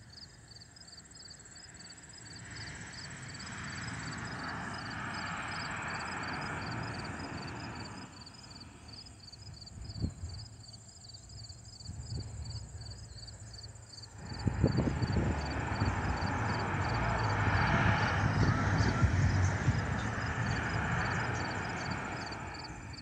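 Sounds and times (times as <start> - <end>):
crickets chirping: 0.0 - 23.0
distant jet roar: 2.4 - 8.9, 14.1 - 23.0.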